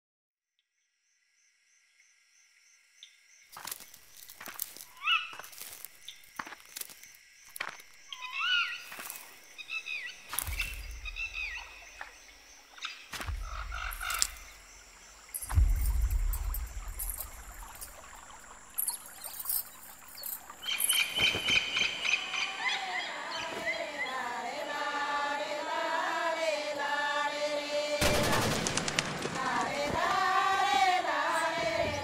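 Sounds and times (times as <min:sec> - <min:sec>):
birds chirping: 0:07.7 - 0:24.8
deep low rumbling: 0:15.4 - 0:18.2.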